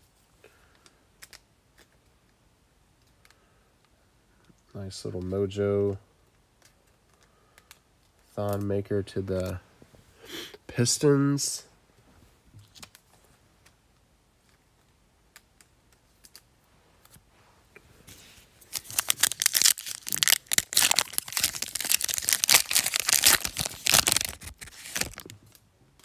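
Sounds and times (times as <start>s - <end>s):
foil wrapper crinkling and tearing: 18.6s - 25.6s.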